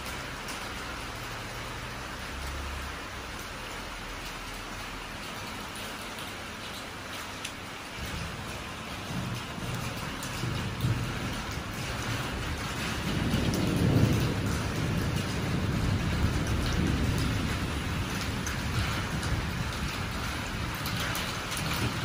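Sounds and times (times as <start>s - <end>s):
steady rain falling: 0.0s - 22.0s
thunder rumbling: 7.9s - 22.0s.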